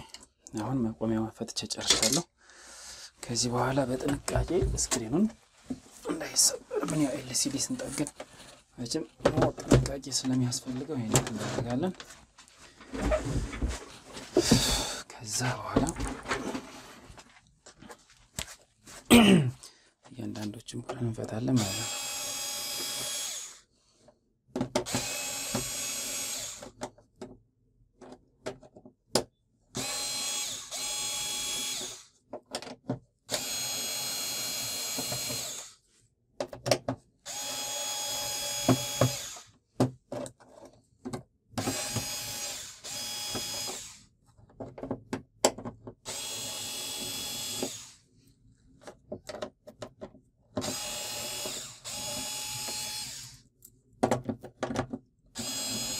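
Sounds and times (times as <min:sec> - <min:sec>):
electric screwdriver running: 0:21.6 - 0:23.6, 0:24.9 - 0:26.7, 0:29.8 - 0:32.1, 0:33.3 - 0:35.8, 0:37.3 - 0:39.5, 0:41.6 - 0:44.0, 0:46.1 - 0:48.0, 0:50.6 - 0:53.4, 0:55.4 - 0:55.9.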